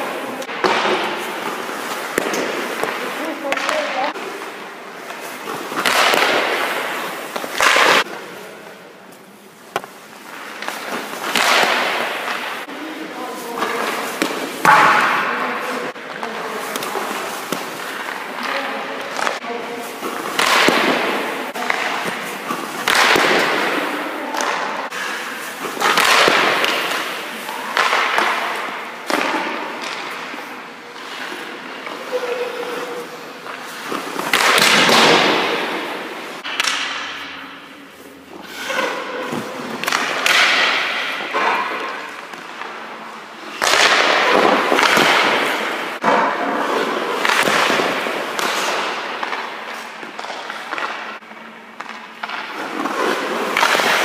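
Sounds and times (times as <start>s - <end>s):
pucks knocking: 0.0s - 8.3s, 9.7s - 12.7s, 20.0s - 37.6s, 38.5s - 54.0s
skate blades scraping on ice: 0.0s - 8.3s, 19.1s - 36.4s, 52.2s - 54.0s.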